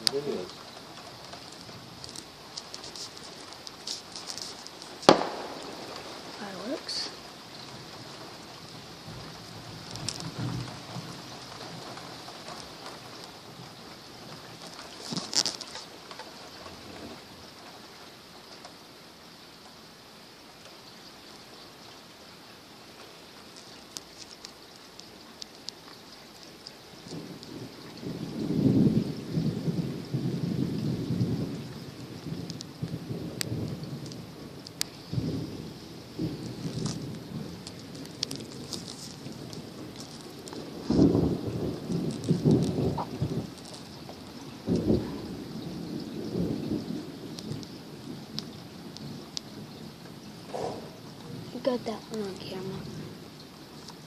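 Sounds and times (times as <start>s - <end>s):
distant fireworks booming: 0.0s - 15.5s, 27.0s - 53.2s
distant thunder rumbling: 0.0s - 18.4s, 26.3s - 53.8s
steady outdoor hiss: 0.0s - 54.0s
sharp pops: 1.4s - 7.2s, 50.5s - 52.5s.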